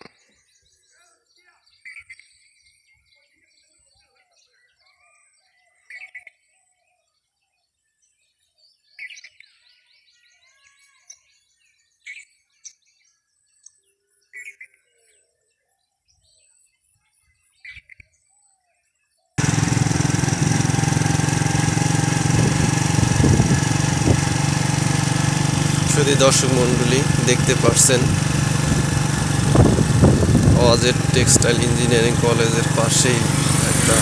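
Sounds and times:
motorcycle engine hum: 0:19.4 - 0:34.0
small birds chirping: 0:19.4 - 0:34.0
wind noise: 0:22.2 - 0:24.5, 0:28.1 - 0:31.7.

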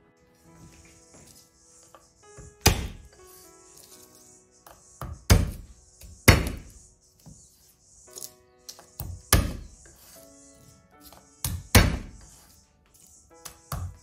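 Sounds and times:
soft background music: 0:00.0 - 0:14.0.

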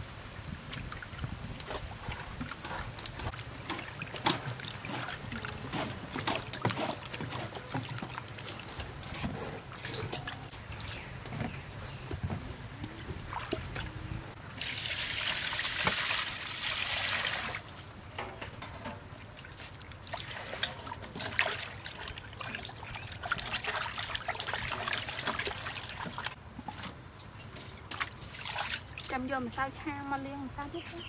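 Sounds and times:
running water: 0:00.0 - 0:17.9, 0:19.0 - 0:30.2
small splashes and drips: 0:00.5 - 0:09.1, 0:19.3 - 0:29.2
water sloshing in a basin: 0:00.5 - 0:29.7.

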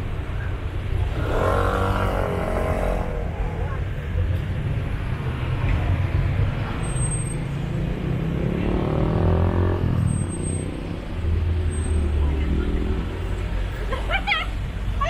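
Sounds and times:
traffic engines rumbling: 0:00.0 - 0:15.0
engine speeding up: 0:07.5 - 0:13.2.

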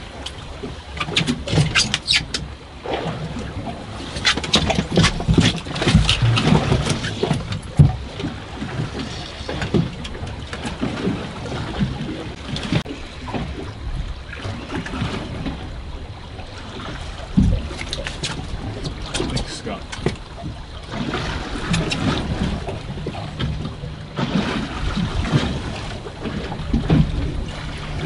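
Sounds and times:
water against boat hull: 0:00.0 - 0:28.0
wind: 0:00.0 - 0:28.0.

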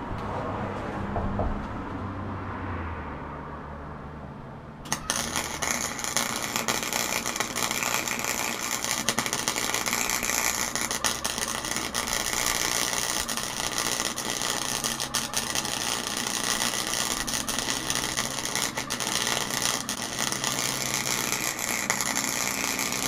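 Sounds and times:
welder crackling and sizzling: 0:04.9 - 0:23.0.

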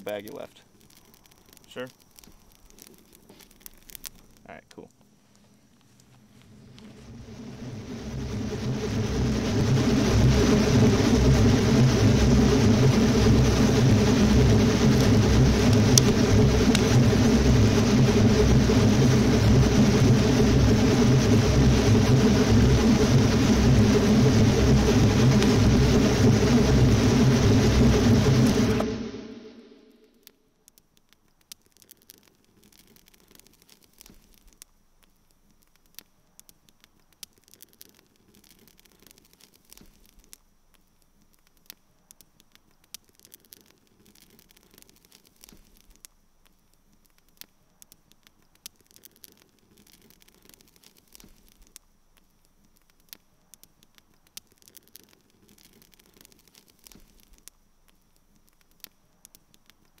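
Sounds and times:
sharp crackling clicks: 0:00.0 - 0:28.9, 0:29.9 - 1:00.0
low hiss: 0:00.0 - 1:00.0
thin high whine: 0:04.4 - 0:30.5.

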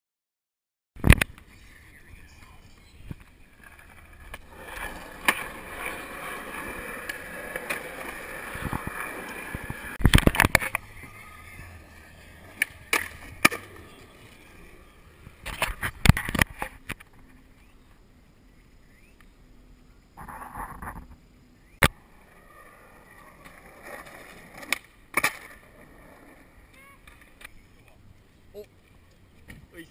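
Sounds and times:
skateboard wheels rolling on concrete: 0:01.0 - 0:29.9
skateboard clattering and slapping: 0:03.2 - 0:17.3, 0:23.1 - 0:27.6
skateboard single clicks: 0:09.5 - 0:10.8, 0:24.6 - 0:25.6.

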